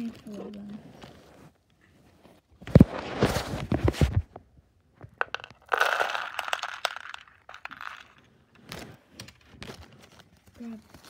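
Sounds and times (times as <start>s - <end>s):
beads dropped into cardboard box: 5.0s - 9.7s
plastic beads clattering: 5.1s - 9.4s
plastic bag crinkling: 5.2s - 9.0s.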